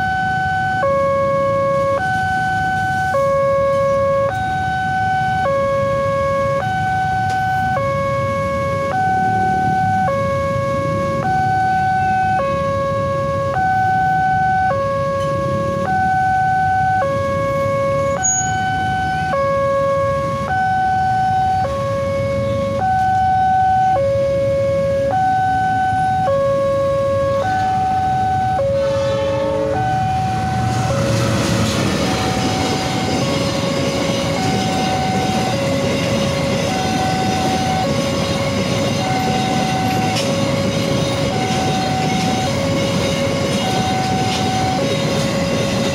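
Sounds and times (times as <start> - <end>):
level crossing alarm tones: 0.0 - 45.9
freight train rumbling past: 15.1 - 16.0, 27.3 - 45.9.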